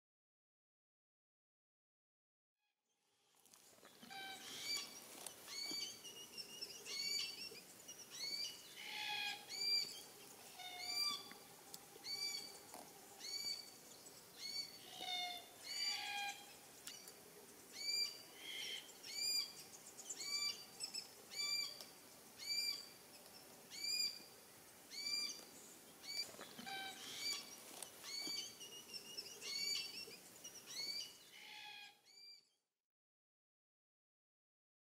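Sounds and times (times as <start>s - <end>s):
cockatoos calling: 3.9s - 13.8s, 14.4s - 17.1s, 26.1s - 32.0s.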